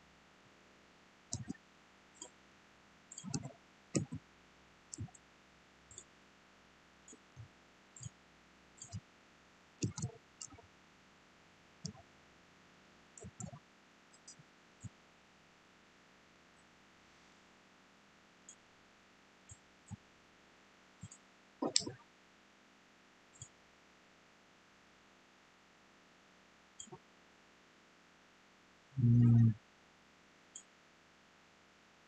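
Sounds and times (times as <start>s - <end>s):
faint steady hiss: 0.0s - 32.0s
mouse and keyboard clicking: 1.3s - 1.6s, 3.1s - 4.2s, 4.9s - 5.2s, 8.8s - 9.0s, 9.8s - 10.6s, 13.2s - 13.6s, 21.0s - 22.0s.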